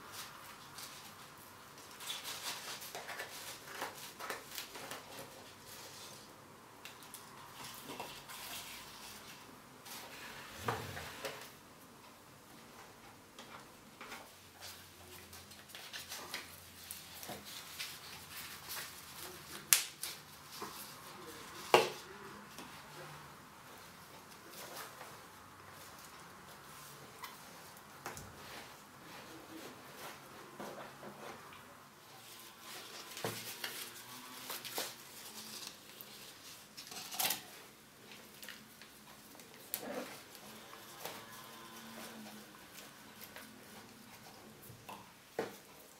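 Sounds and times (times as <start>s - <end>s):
plants rustling: 14.5s - 45.9s.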